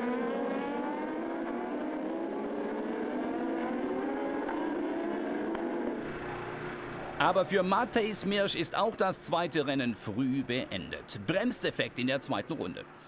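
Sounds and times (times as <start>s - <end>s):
racing motorcycles at speed: 0.0s - 10.4s.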